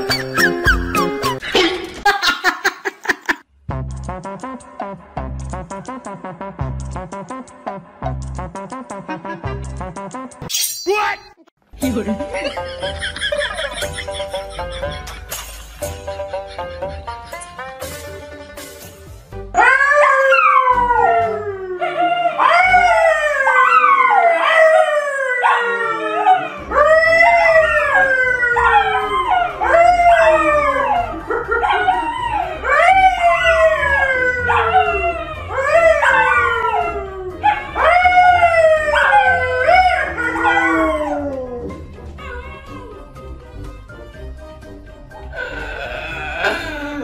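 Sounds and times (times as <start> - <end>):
man howling: 19.6 - 43.0, 45.3 - 47.0
dog howling: 19.6 - 43.1.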